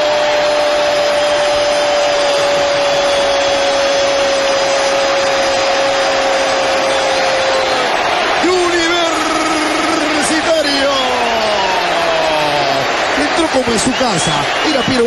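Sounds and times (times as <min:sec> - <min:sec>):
stadium crowd cheering: 0:00.0 - 0:15.0
commentator's drawn-out goal cry: 0:08.4 - 0:15.0.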